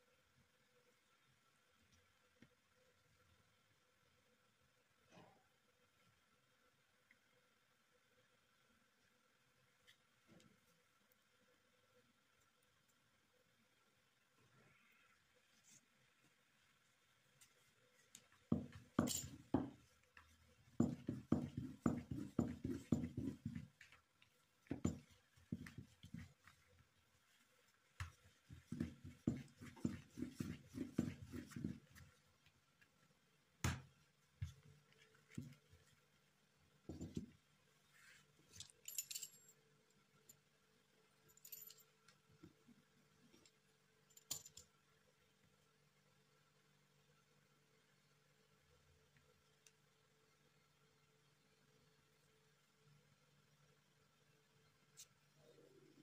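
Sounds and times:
rolling pin rubbing over dough: 18.4s - 32.3s.

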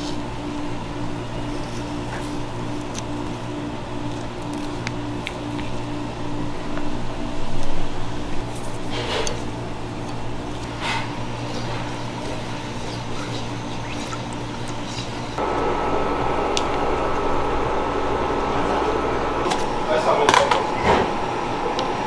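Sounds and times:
steady low hum: 0.0s - 22.0s
spatula stirring liquid: 8.4s - 15.4s.

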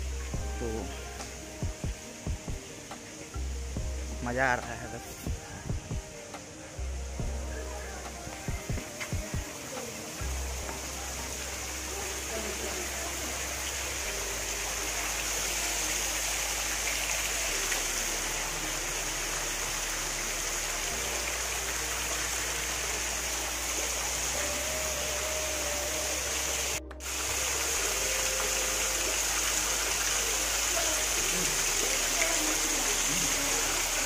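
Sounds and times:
water splashing below: 7.2s - 34.0s
water pouring off roof: 7.8s - 34.0s.

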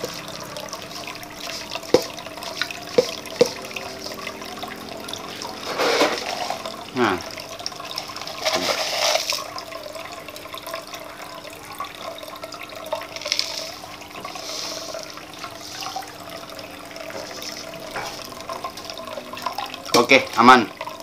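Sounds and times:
low pump hum: 0.0s - 8.5s, 9.3s - 21.0s
water trickling: 0.0s - 21.0s
sand pouring: 5.6s - 6.7s, 8.3s - 9.5s, 13.2s - 15.8s.

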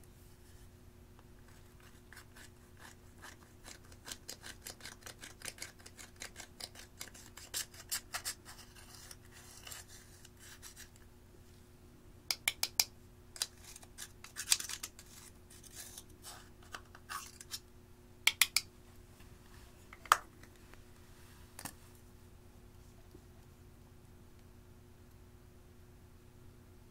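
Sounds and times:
sharp clicks and taps: 12.3s - 12.9s, 18.3s - 18.7s.

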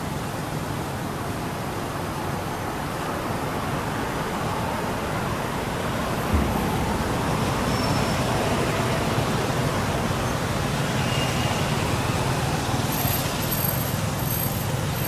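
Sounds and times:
rumbling hiss: 2.2s - 12.8s.

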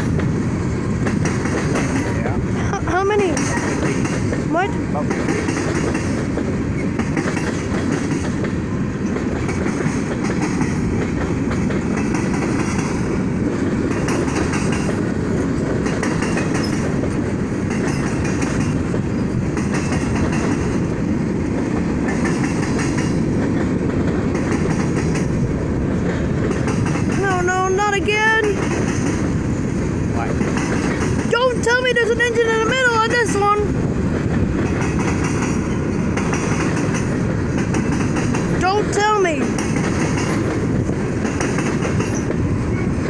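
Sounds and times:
train wheels rumbling on rails: 0.0s - 43.0s
wheels clacking over rail joints: 0.0s - 43.0s.

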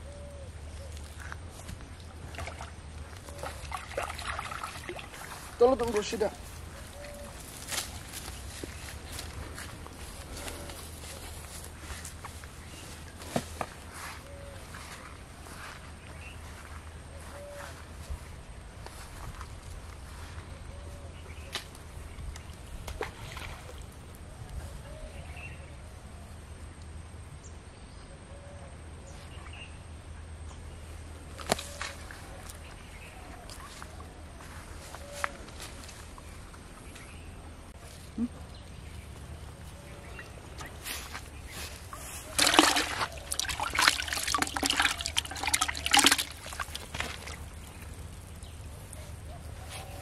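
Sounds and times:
water splashing in plastic bucket: 1.7s - 6.2s, 42.2s - 48.7s.

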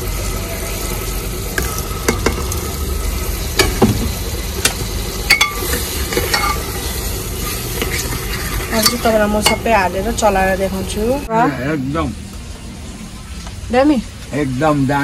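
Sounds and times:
lentils frying in oil: 0.0s - 15.0s
ladle clinking on metal pot: 4.6s - 6.6s.

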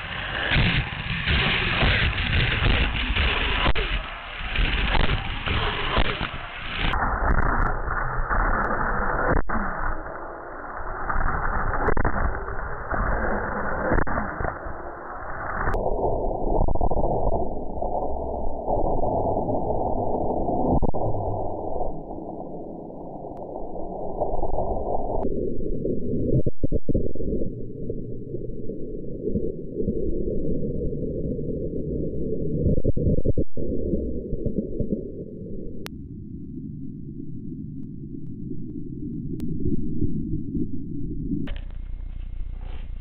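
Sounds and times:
slowed deep muffled rattle rumble: 41.3s - 43.0s.

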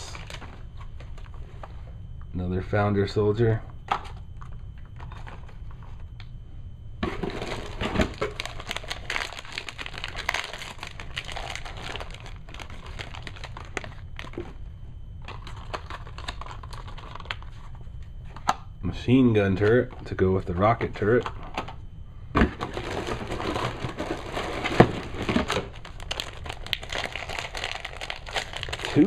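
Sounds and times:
plastic packaging crinkling: 0.0s - 0.6s, 7.0s - 14.6s, 15.2s - 17.7s, 22.6s - 29.0s.

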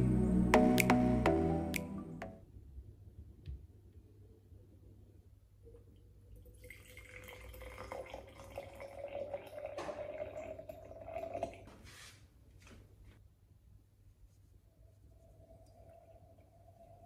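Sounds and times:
water pouring into glass jar: 6.3s - 11.7s, 15.2s - 17.0s.

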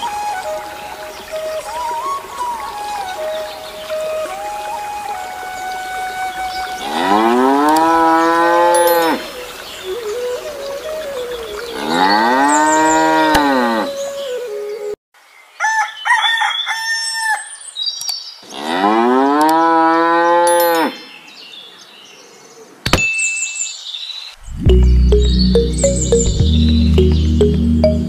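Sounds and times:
cow mooing: 6.8s - 9.2s.

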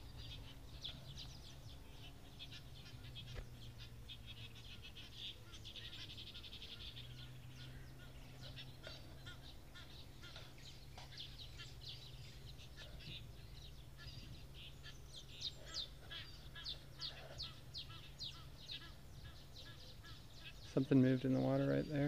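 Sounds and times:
faint low hum: 0.0s - 22.0s
small birds chirping: 0.0s - 22.0s.

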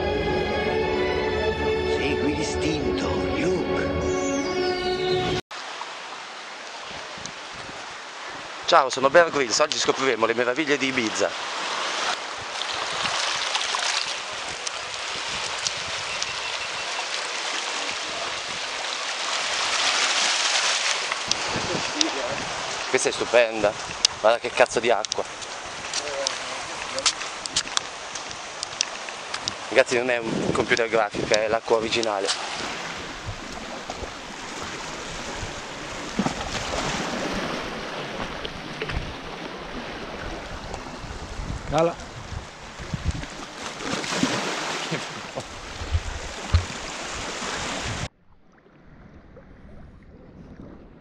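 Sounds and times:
waves washing over pebbles: 5.6s - 48.1s
wind buffeting microphone: 12.3s - 13.4s, 14.3s - 16.8s, 21.2s - 28.5s, 29.2s - 31.5s, 32.5s - 44.4s, 45.2s - 48.1s.

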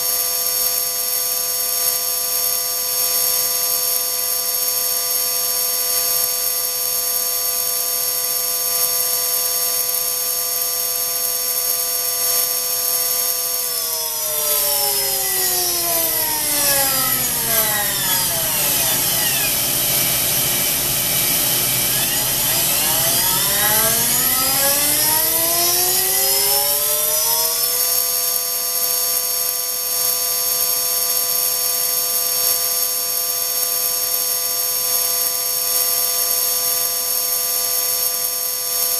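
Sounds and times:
electric motor spindle whining: 13.5s - 28.0s.

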